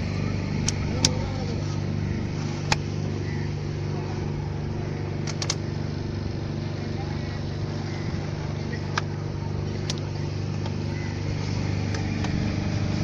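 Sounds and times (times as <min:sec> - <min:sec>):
boat motor running: 0:00.0 - 0:13.0
sharp clicks: 0:05.2 - 0:05.7, 0:09.8 - 0:10.8.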